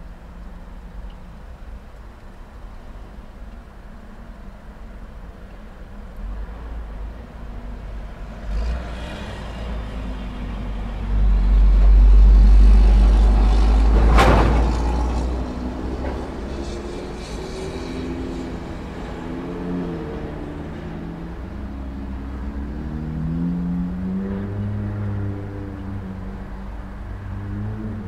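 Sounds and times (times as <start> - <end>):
vehicle engines running: 6.0 - 28.0
vehicle rumbling past: 6.2 - 28.0.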